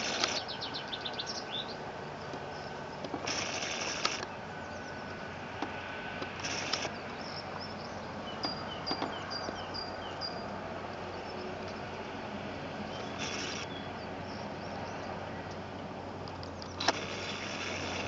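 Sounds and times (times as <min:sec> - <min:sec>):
small bird chirping: 0:00.0 - 0:05.2, 0:06.4 - 0:10.5, 0:12.8 - 0:15.2.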